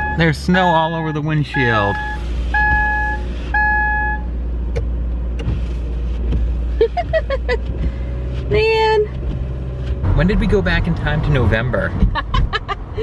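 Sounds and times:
two-tone dashboard chime: 0.0s - 4.3s
idling engine hum: 0.0s - 13.0s.

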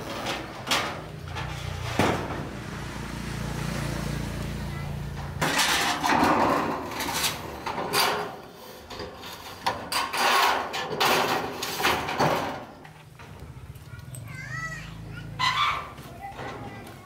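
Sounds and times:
hand tool scraping wood: 5.4s - 12.0s.

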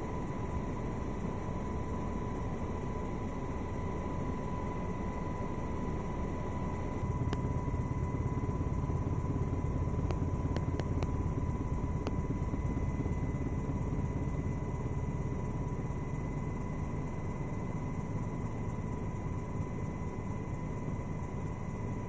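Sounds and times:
helicopter engine and rotor rumble: 0.0s - 22.0s
thin steady whine: 0.0s - 22.0s
faint clicks: 7.1s - 14.4s.

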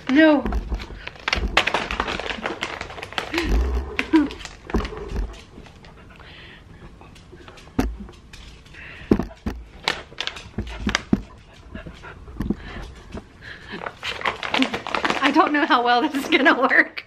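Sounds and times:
plastic bag rustling: 0.0s - 5.9s, 9.7s - 11.1s, 12.6s - 16.5s
sharp knocks and thumps: 0.4s - 2.1s, 7.8s - 8.2s, 9.0s - 9.7s.

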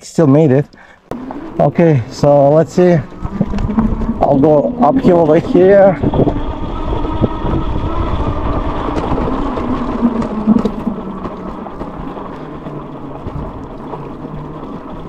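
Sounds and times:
tyres on dirt: 0.3s - 15.0s
faint electric motor whine: 1.1s - 15.0s
wind rumbling on microphone: 1.1s - 15.0s.

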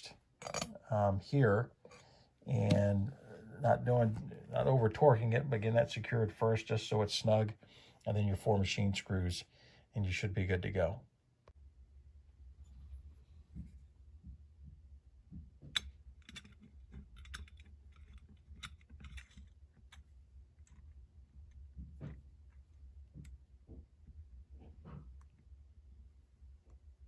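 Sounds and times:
small metal parts clicking: 15.8s - 20.8s.

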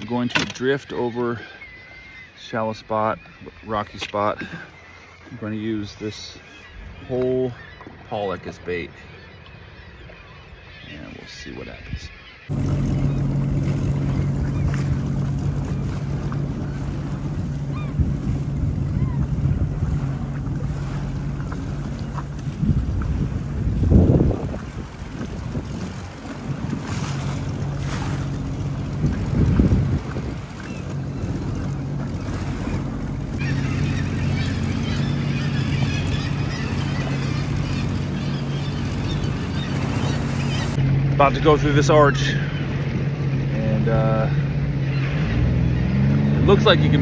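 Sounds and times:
jet ski engine humming: 0.0s - 47.0s
water washing around hull: 0.0s - 47.0s
wind on microphone: 12.0s - 40.8s.

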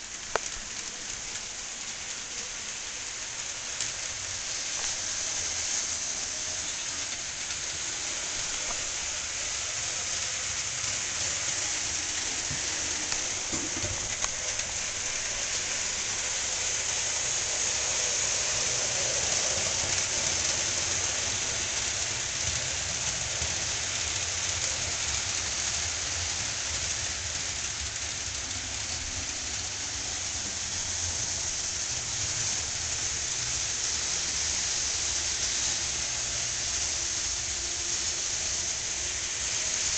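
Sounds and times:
steady hiss: 0.0s - 39.9s.

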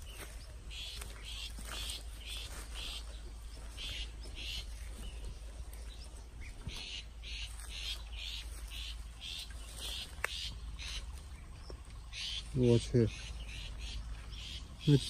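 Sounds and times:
shrike harsh calls: 12.0s - 15.0s.

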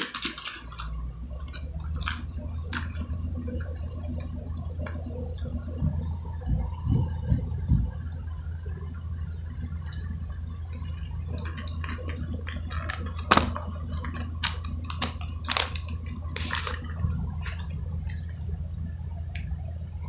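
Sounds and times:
plastic packaging crinkling: 0.0s - 3.9s, 11.4s - 18.4s
low hum: 0.0s - 20.0s.

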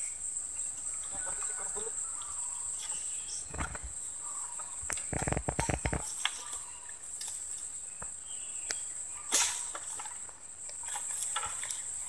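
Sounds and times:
high-pitched insect drone: 0.0s - 6.8s
dry leaves and twigs rustling: 0.0s - 12.0s.

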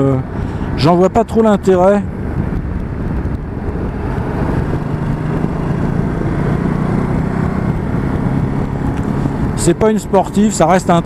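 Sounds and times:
wind and road noise: 0.0s - 11.0s
motorcycle engine accelerating: 2.0s - 10.2s.

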